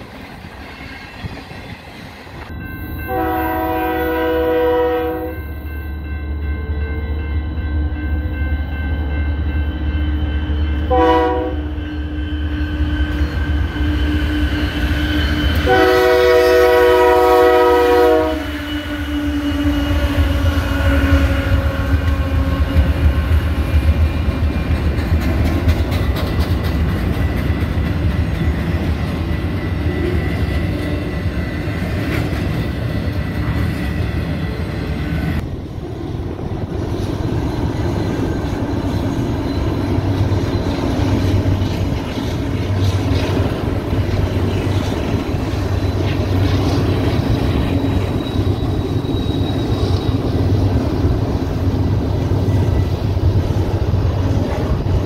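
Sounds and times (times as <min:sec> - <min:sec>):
freight train rumbling past: 0:00.0 - 0:55.0
locomotive air horn blast: 0:03.1 - 0:05.4, 0:10.9 - 0:12.2, 0:15.6 - 0:22.6.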